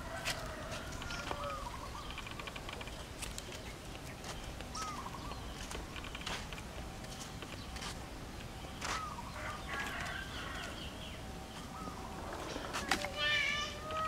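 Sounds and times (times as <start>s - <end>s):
high ticking bird notes: 1.1s - 9.3s
bird whistled calls: 4.7s - 5.5s.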